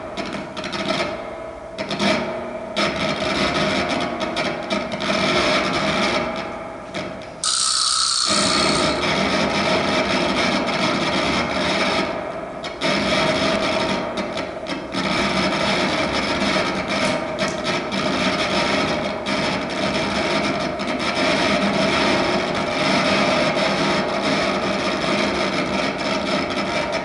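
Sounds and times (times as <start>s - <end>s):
guitar saxophone and drums improvising: 7.0s - 12.2s.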